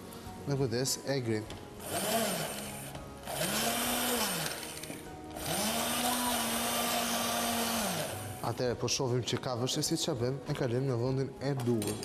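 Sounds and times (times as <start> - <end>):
immersion blender motor: 1.8 - 8.5.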